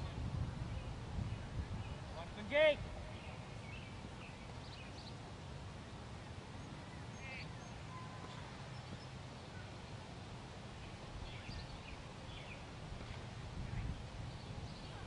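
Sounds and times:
faint bird chirps: 0:06.2 - 0:09.8.

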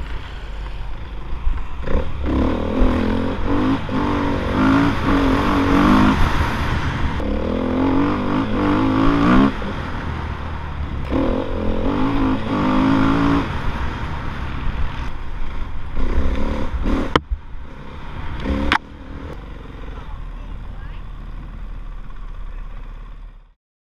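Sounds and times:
dirt bike engine revving: 0:01.7 - 0:23.2.

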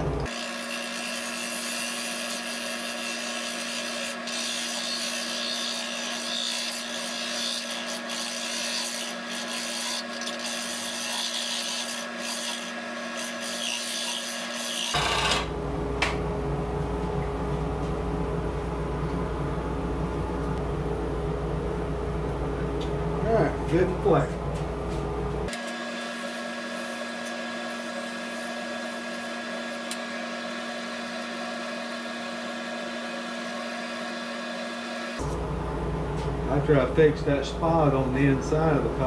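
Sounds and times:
turning tool scraping wood: 0:00.2 - 0:15.4, 0:25.6 - 0:35.2
lathe humming: 0:25.5 - 0:35.5.

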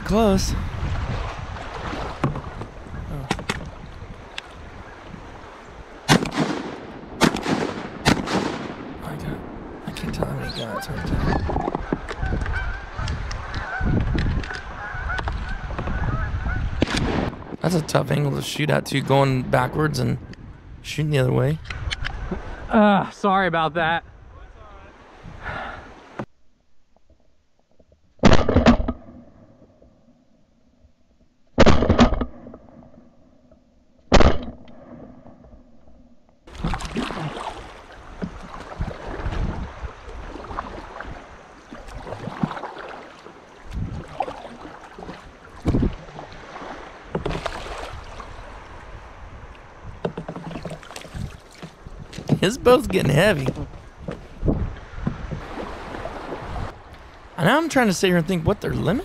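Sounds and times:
water noise: 0:00.0 - 0:22.8, 0:36.5 - 0:59.0
wind noise: 0:00.0 - 0:22.8, 0:25.1 - 0:26.0, 0:36.5 - 0:42.6, 0:43.6 - 0:57.6
shotgun shots: 0:06.1 - 0:09.0
geese honking: 0:10.2 - 0:14.0, 0:14.6 - 0:16.7.

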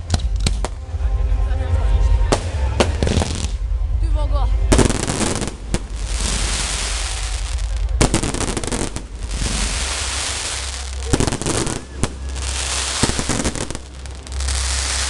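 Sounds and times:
firework bangs: 0:02.3 - 0:03.6, 0:04.7 - 0:15.0
fireworks crackling: 0:02.3 - 0:03.7, 0:04.7 - 0:15.0.

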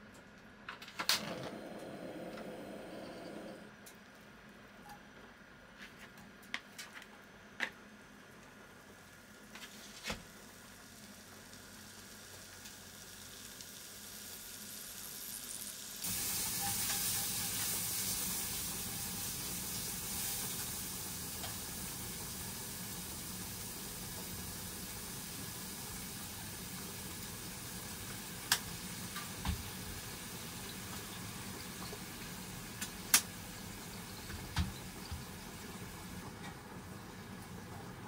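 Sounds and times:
meat sizzling in a frying pan: 0:09.7 - 0:36.2.

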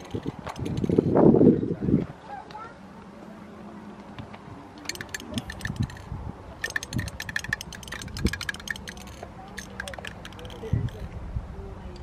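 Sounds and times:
spray paint can rattling: 0:00.0 - 0:01.2, 0:04.8 - 0:11.1.

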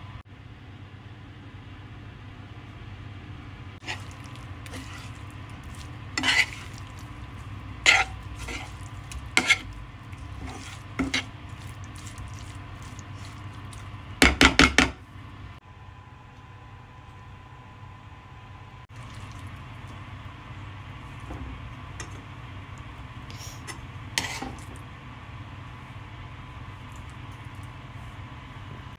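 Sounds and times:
steady low hum: 0:00.0 - 0:28.9
metal spoon scraping pan: 0:03.8 - 0:14.9, 0:23.5 - 0:24.7
spoon knocking on pan: 0:14.2 - 0:15.0.

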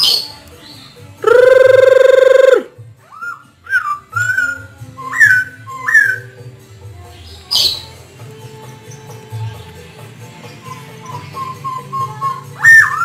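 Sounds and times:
bird whistling song: 0:00.0 - 0:06.5, 0:07.4 - 0:08.0, 0:10.4 - 0:13.0.

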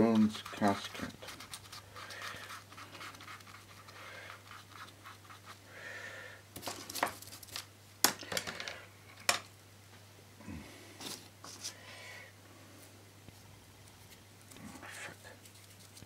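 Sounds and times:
paintbrush scratching over paper: 0:00.0 - 0:05.6, 0:14.8 - 0:16.0.

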